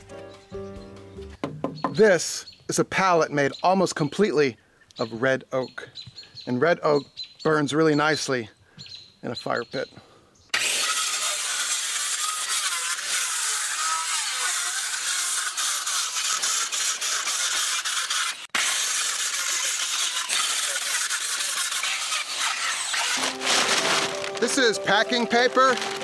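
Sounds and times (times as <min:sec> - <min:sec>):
circular saw cutting wood: 0:10.5 - 0:26.0.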